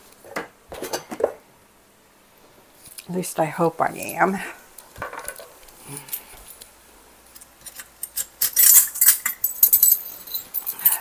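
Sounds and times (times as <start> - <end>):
metal measuring spoons jingling: 7.6 - 11.0.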